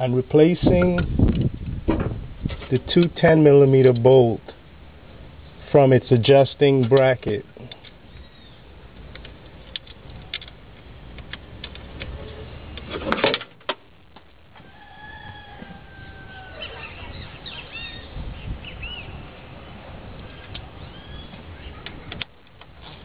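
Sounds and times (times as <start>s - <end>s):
birds chirping: 7.5s - 9.0s, 14.8s - 22.3s.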